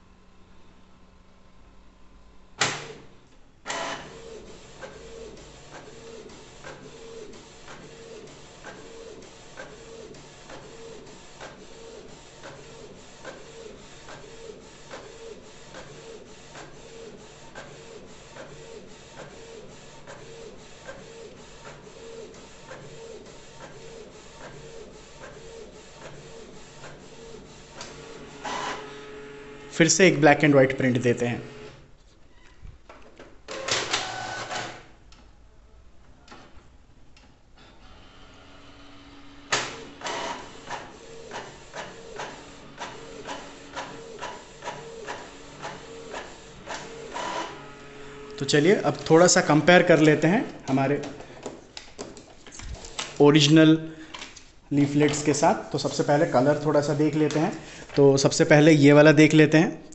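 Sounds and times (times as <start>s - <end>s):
printer paper feed clunks: 2.6s - 3.1s, 3.7s - 29.7s, 39.4s - 52.2s.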